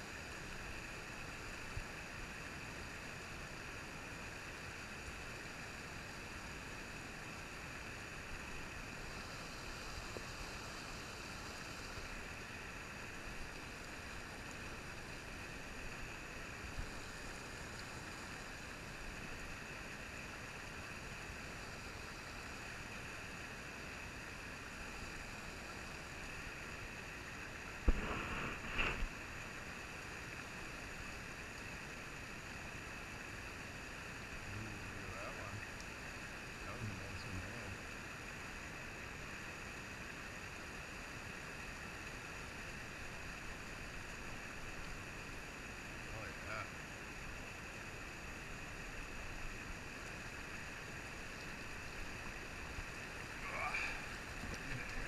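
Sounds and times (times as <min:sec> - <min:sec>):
stream rushing over rock: 0:00.0 - 0:55.0.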